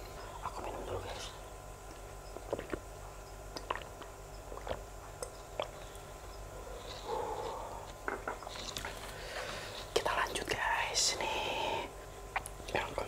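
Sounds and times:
wet mouth clicks and lip smacks: 3.6 - 5.8, 12.3 - 12.6.

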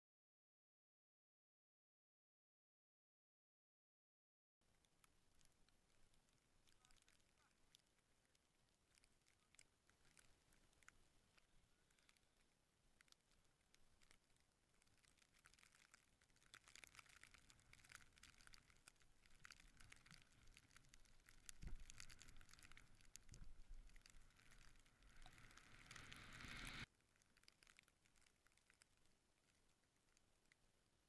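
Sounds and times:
skis crackling through snow: 21.6 - 26.9
snow hissing: 24.1 - 26.9.

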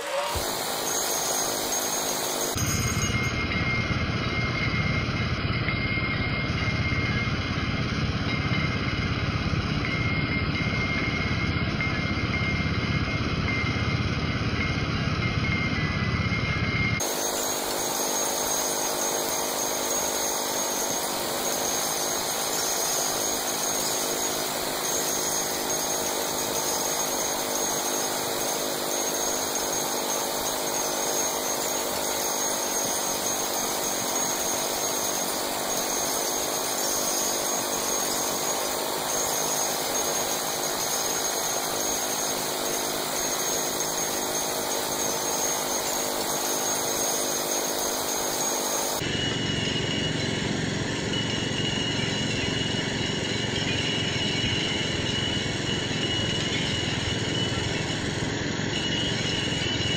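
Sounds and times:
minigun firing continuously: 17.0 - 59.9.

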